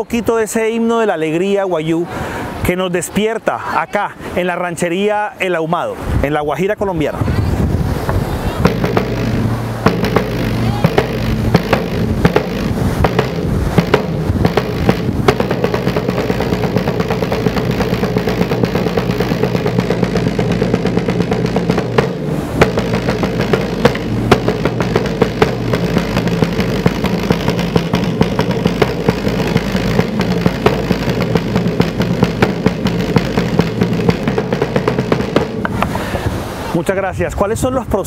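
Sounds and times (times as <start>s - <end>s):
wooden drum beaten with sticks: 8.0s - 35.9s.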